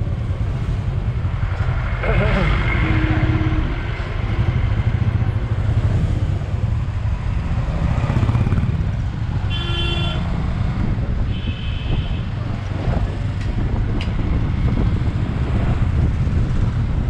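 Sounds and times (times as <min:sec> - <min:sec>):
vehicle horn tooting: 0:02.8 - 0:03.8, 0:09.5 - 0:10.3, 0:11.3 - 0:12.3.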